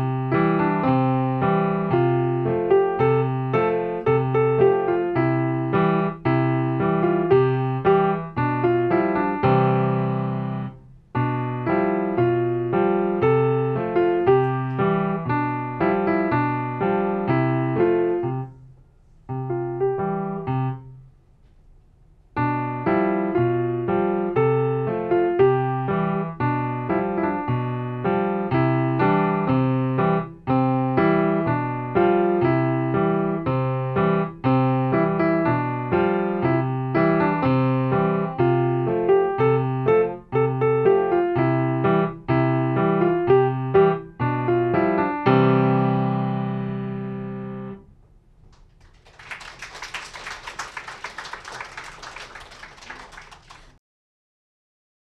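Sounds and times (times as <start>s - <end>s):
grand piano notes and chords: 0.0s - 48.9s
applause: 48.5s - 53.8s.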